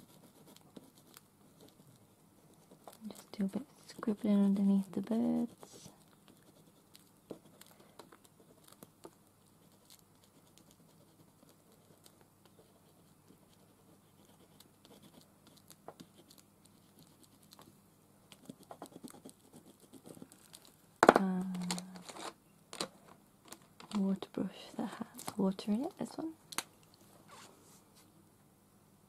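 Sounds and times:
pencil scribbling on paper: 0:00.0 - 0:03.2, 0:03.8 - 0:08.9, 0:09.5 - 0:17.6, 0:18.3 - 0:20.4.

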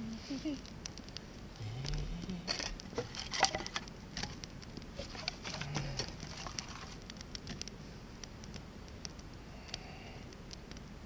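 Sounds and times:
campfire crackling and popping: 0:00.0 - 0:11.0
sticks knocking and rustling: 0:01.8 - 0:07.8.

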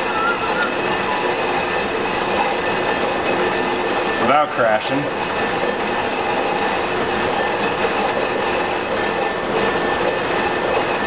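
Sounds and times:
sustained tones: 0:00.0 - 0:01.4
brake lathe metallic whir: 0:00.0 - 0:11.0.

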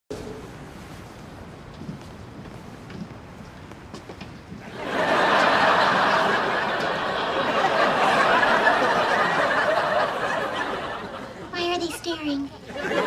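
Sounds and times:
studio audience laughing: 0:04.7 - 0:13.0.

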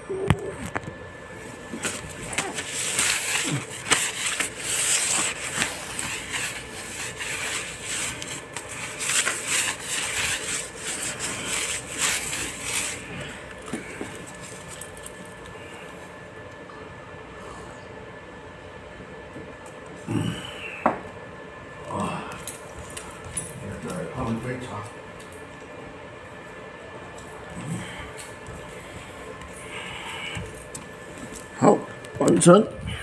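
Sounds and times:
cloth scrubbing hard floor: 0:01.7 - 0:14.4.

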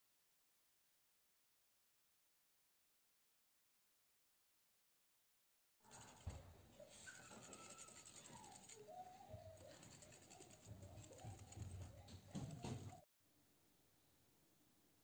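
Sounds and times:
whisk clicking in bowl: 0:09.6 - 0:13.0.

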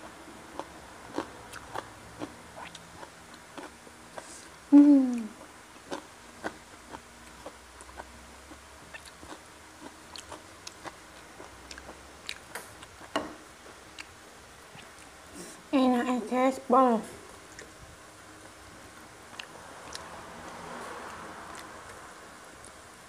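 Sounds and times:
person chewing: 0:00.5 - 0:15.6, 0:17.5 - 0:17.8, 0:19.3 - 0:22.0.

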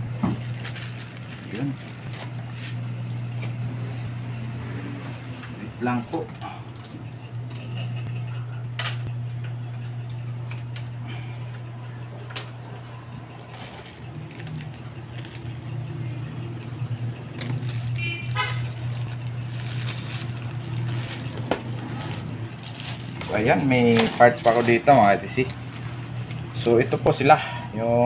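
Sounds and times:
steady low hum: 0:00.0 - 0:28.0
plastic parts rattling: 0:13.4 - 0:15.7, 0:17.4 - 0:25.6.

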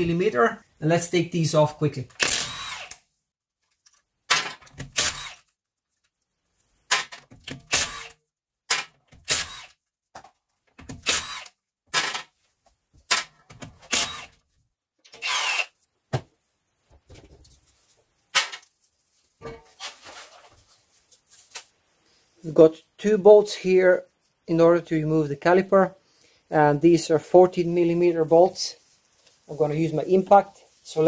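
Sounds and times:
impact wrench bursts: 0:02.2 - 0:03.0, 0:04.8 - 0:05.5, 0:07.7 - 0:08.2, 0:09.2 - 0:09.7, 0:11.0 - 0:12.2, 0:13.9 - 0:14.3, 0:15.2 - 0:15.7.

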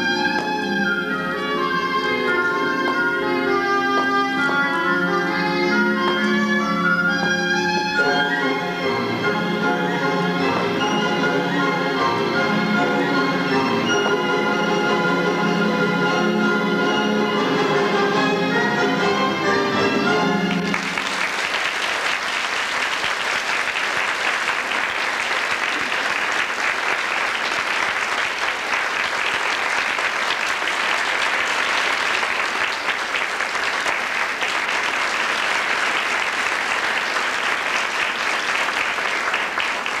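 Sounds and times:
orchestral music: 0:00.0 - 0:21.2
audience applauding: 0:20.4 - 0:40.0.

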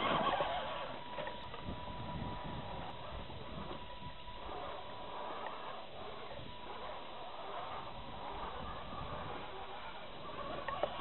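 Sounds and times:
rc truck electric motors whining: 0:00.0 - 0:11.0.

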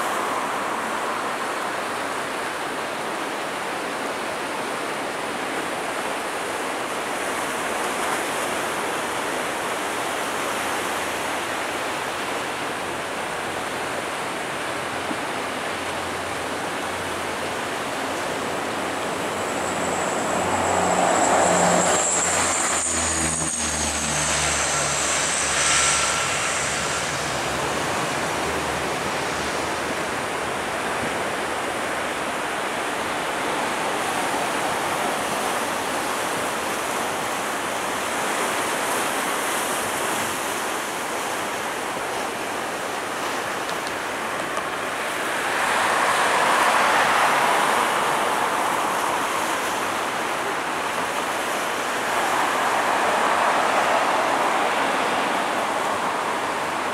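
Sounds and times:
jet engines running: 0:08.6 - 0:56.9
high engine whine: 0:08.7 - 0:40.6.

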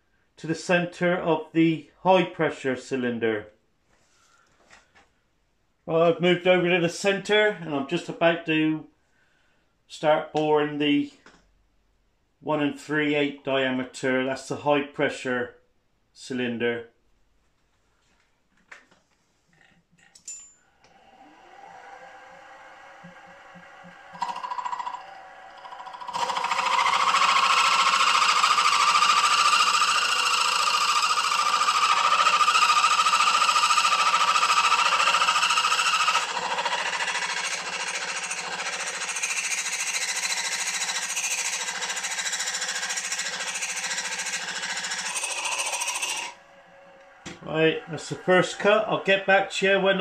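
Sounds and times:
milling machine cutting metal: 0:20.9 - 0:49.1.

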